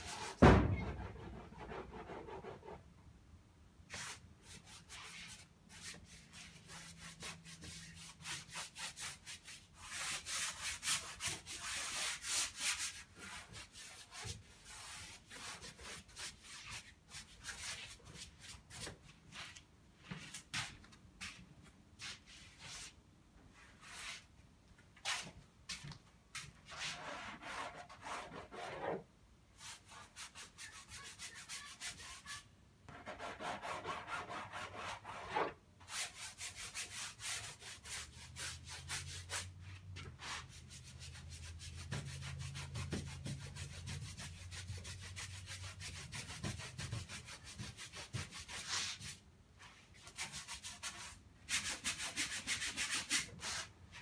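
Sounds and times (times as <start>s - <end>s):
loud knock: 0.4s - 1.2s
paintbrush scrubbing canvas: 3.9s - 19.6s, 29.6s - 32.4s.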